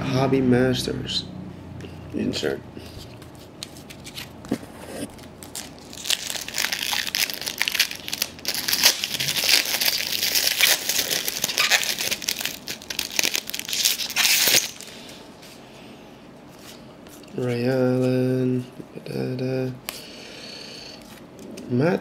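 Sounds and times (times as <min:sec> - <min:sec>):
card pack wrapper crinkling and tearing: 0:03.6 - 0:04.4, 0:05.1 - 0:15.1.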